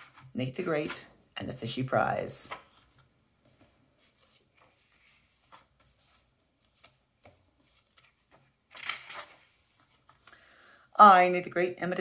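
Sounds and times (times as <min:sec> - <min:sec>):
book page turning: 0:02.2 - 0:10.2.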